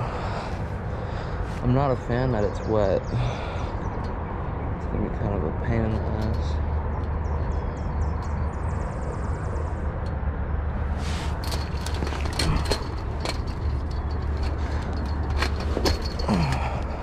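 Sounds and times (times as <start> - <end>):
steady low rumble: 0.0 - 17.0
wire fence clanking and rattling: 10.8 - 17.0.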